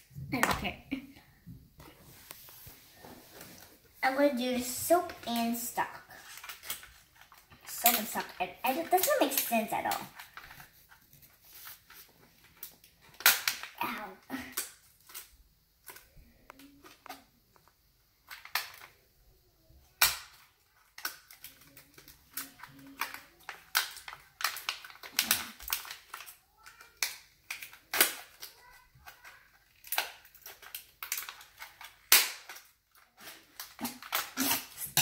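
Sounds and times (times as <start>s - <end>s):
toy packaging crackling: 4.0s - 19.1s, 19.9s - 35.0s.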